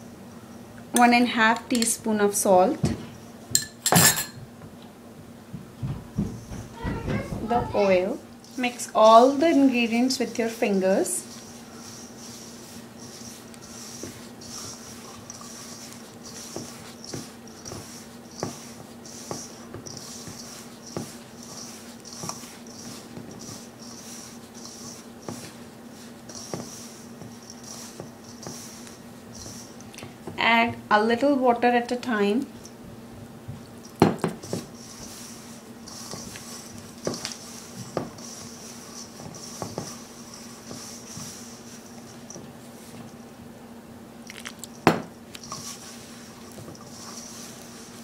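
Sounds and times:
hands rubbing flour in a bowl: 7.5s - 30.4s, 33.6s - 43.2s, 44.3s - 48.0s.

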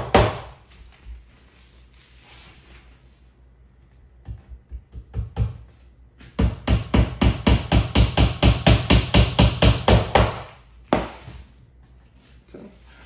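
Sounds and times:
hammer tapping a nail into wood: 6.2s - 11.2s.

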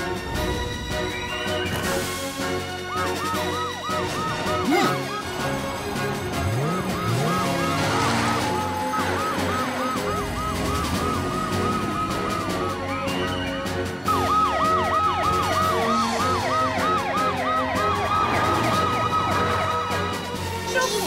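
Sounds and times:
background music: 0.0s - 21.0s
slow rise-and-fall siren wail: 0.4s - 20.6s
cartoon sirens wailing: 1.0s - 20.6s
siren with quick falling sweeps: 6.4s - 20.1s.

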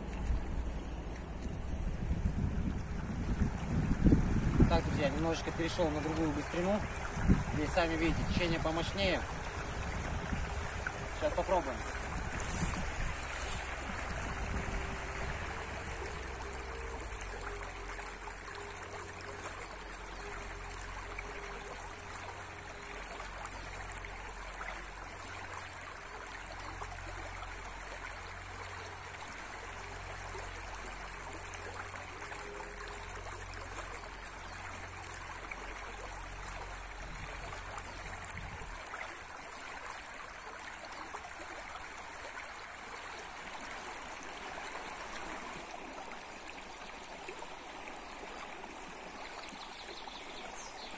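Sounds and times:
low rumble: 0.0s - 4.9s, 9.2s - 21.6s
river rushing over stones: 0.0s - 49.6s.

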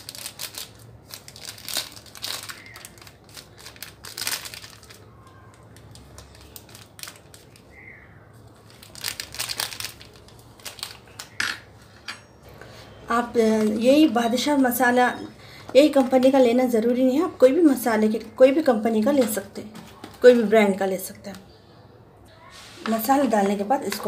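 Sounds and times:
plastic packet crinkling: 0.0s - 11.4s.

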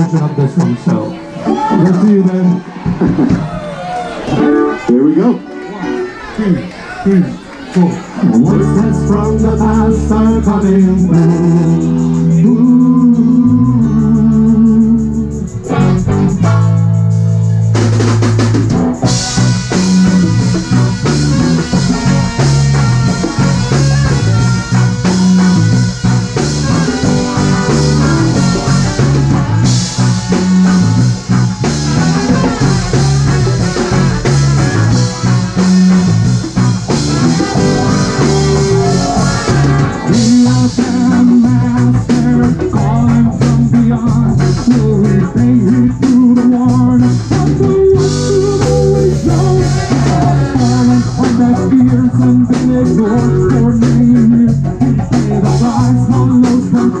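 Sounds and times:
live band playing instrumental: 0.0s - 57.0s
drum beat with cymbals: 15.6s - 57.0s.

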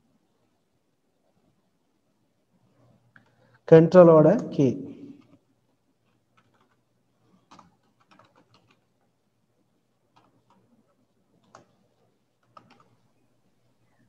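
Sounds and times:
faint keyboard typing: 2.7s - 3.6s, 4.3s - 14.0s.

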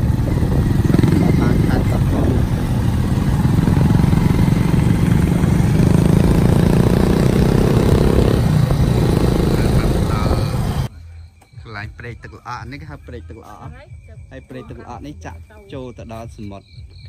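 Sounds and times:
small motorbike engines running: 0.0s - 10.9s.

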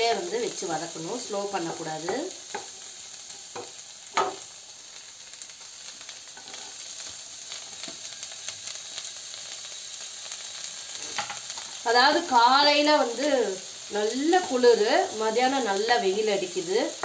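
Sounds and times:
vegetables sizzling in a wok: 0.0s - 17.0s
wooden spatula scraping a pan: 6.4s - 6.8s.

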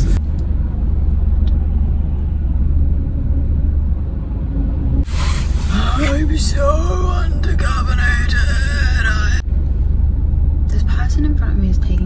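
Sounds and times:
car engine idling: 0.0s - 3.0s, 5.0s - 12.0s
loud hissing noise: 5.0s - 6.1s.

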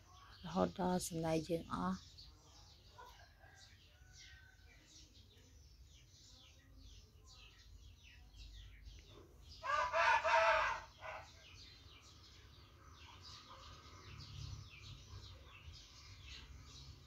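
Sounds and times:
small birds chirping: 0.0s - 17.0s
rooster crowing: 9.6s - 11.4s.

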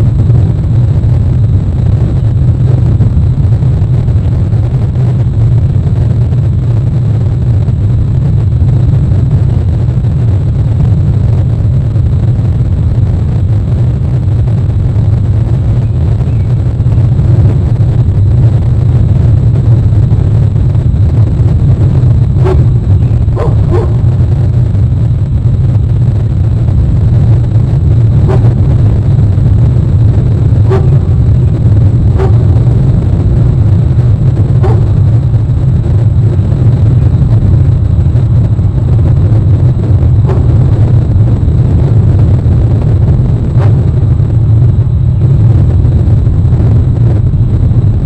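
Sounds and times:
loud low rumble: 0.0s - 48.0s
sharp bark-like calls: 22.4s - 22.7s, 23.3s - 24.1s, 28.2s - 28.6s, 30.7s - 31.0s, 32.2s - 32.5s, 34.6s - 35.0s.

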